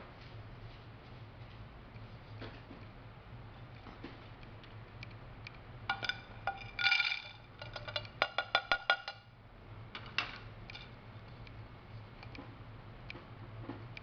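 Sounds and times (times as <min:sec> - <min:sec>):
capsules clicking and clinking: 0:05.9 - 0:09.2
capsules clattering onto a plate: 0:05.9 - 0:09.3.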